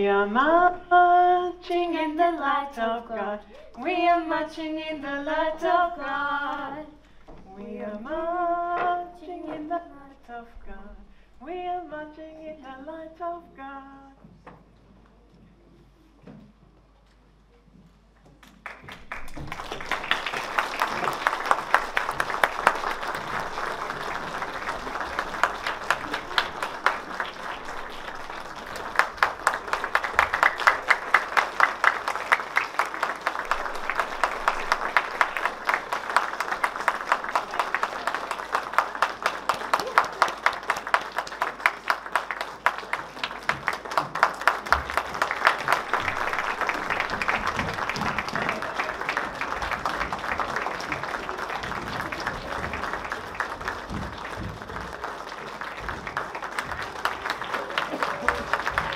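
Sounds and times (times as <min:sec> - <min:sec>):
audience applauding: 0:18.4 - 0:58.9.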